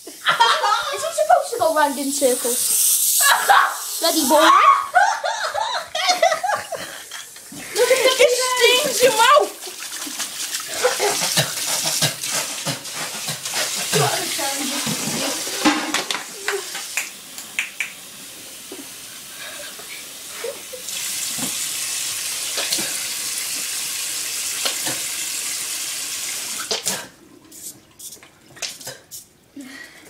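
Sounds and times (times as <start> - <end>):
water splashing: 7.6 - 18.0.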